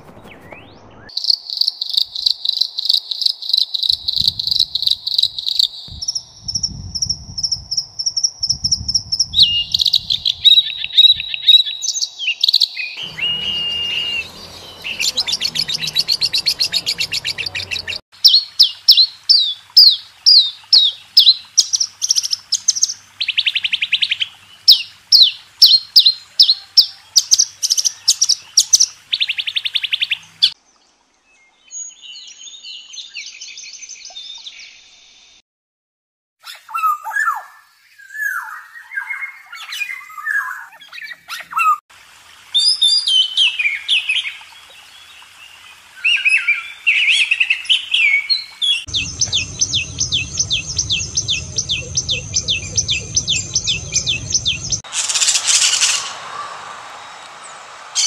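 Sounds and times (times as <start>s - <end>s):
faint bird twittering: 0.0s - 19.0s, 42.6s - 58.0s
sharp repeated bird chirps: 0.0s - 19.1s, 46.3s - 58.0s
bird trills: 9.4s - 30.2s, 46.1s - 58.0s.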